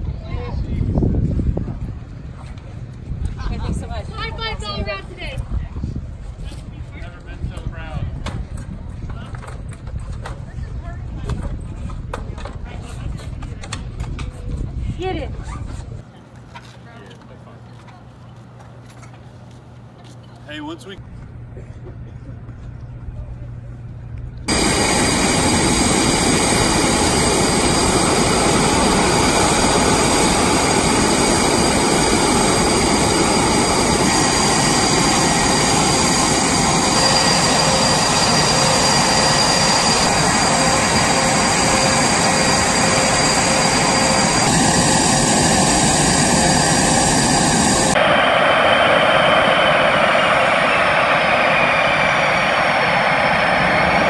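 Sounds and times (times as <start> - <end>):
jet engines roaring: 24.5 - 54.0
taxiing jet whine: 24.5 - 54.0.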